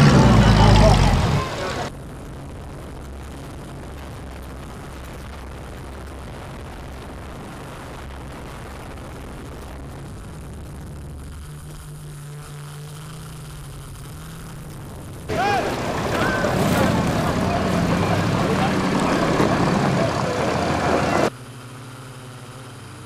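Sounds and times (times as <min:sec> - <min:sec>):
drone motors and propellers: 0:00.0 - 0:01.9, 0:09.4 - 0:23.0.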